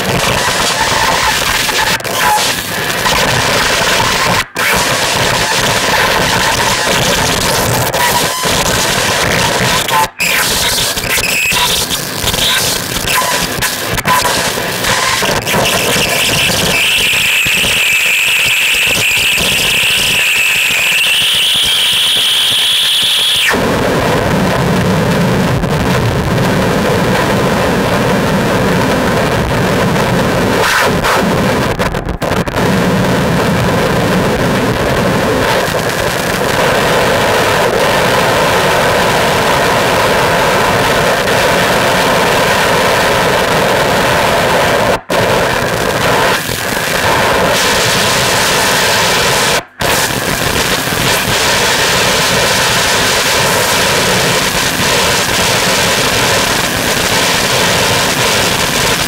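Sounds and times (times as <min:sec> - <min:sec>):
dense distorted noise: 0:00.0 - 0:59.0
high whistling tone: 0:16.1 - 0:23.5.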